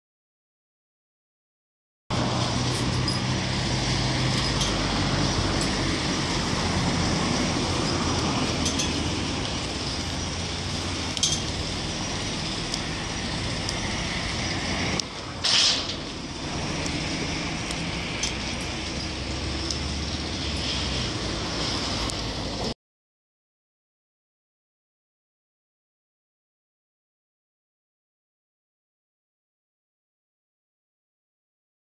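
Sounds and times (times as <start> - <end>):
low engine-like hum: 2.1 - 22.7
brief loud hiss: 15.4 - 16.0.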